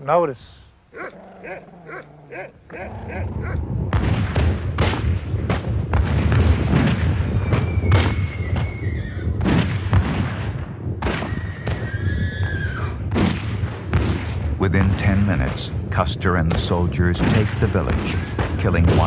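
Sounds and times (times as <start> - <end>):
horses whinnying: 0.9 - 4.4, 7.5 - 9.4, 11.3 - 13.0
low rumble: 1.6 - 6.4
gunshots: 2.9 - 8.7, 9.4 - 11.9, 13.1 - 15.7, 16.5 - 19.0.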